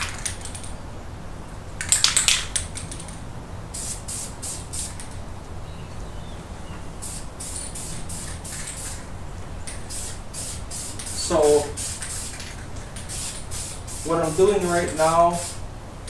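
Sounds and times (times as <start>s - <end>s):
aerosol paint spraying: 3.7s - 5.2s, 7.0s - 9.1s, 9.7s - 15.6s.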